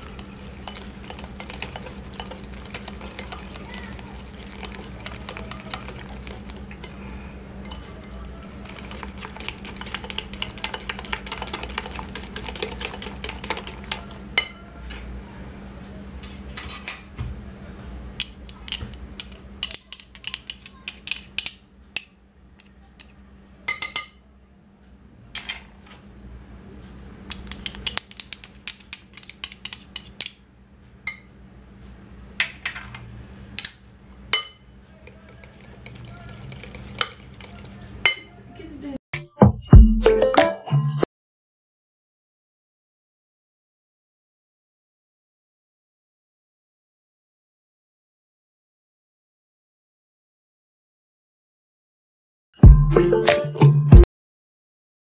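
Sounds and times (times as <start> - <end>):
whisk clicking against glass bowl: 0.0 - 6.9, 7.6 - 14.2, 27.3 - 30.1, 34.4 - 38.4.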